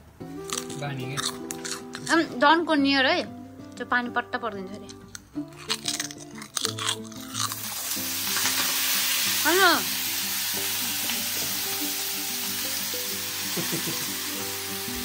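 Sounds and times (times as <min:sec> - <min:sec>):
greens sizzling in hot oil: 0:07.4 - 0:15.0.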